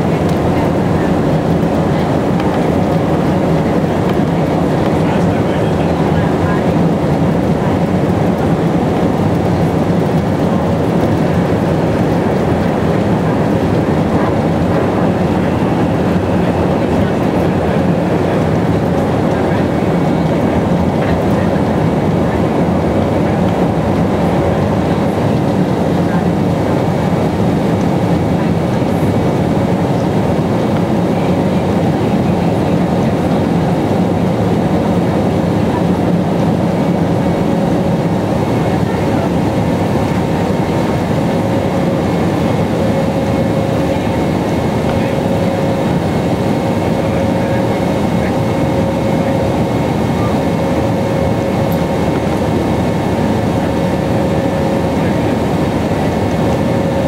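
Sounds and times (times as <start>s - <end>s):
jet engine and airflow rush: 0.0s - 57.0s.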